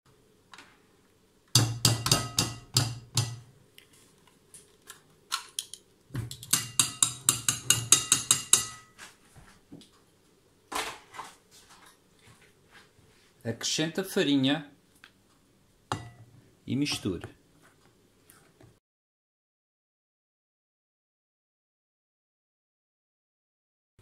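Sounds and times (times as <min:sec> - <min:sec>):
beaters clinking on glass bowl: 0:06.3 - 0:09.0.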